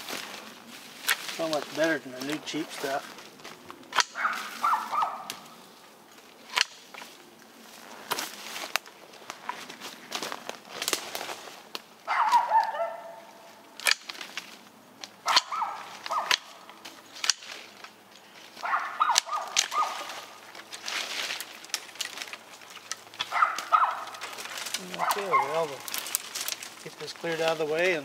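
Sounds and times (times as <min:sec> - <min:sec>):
loppers snapping through brush: 0:01.0 - 0:07.1, 0:08.0 - 0:12.8, 0:13.8 - 0:27.9
dogs barking: 0:04.1 - 0:05.6, 0:12.0 - 0:13.4, 0:15.2 - 0:16.6, 0:18.6 - 0:20.4, 0:23.2 - 0:25.9.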